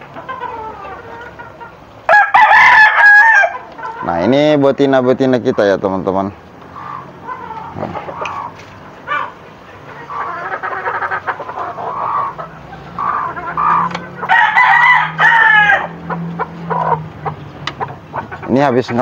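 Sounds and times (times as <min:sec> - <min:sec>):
chickens clucking: 0:00.0 - 0:19.0
rooster crowing: 0:02.1 - 0:03.7, 0:13.0 - 0:17.0.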